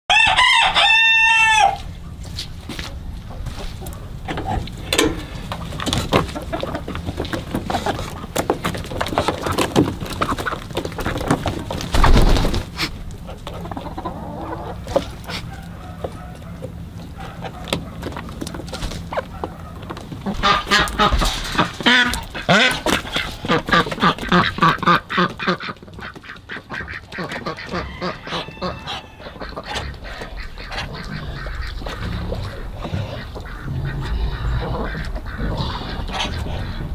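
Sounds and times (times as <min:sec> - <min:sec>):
chickens clucking: 0:00.1 - 0:36.9
metal latch clicking: 0:04.3 - 0:05.3
waterfowl honking: 0:19.1 - 0:36.9.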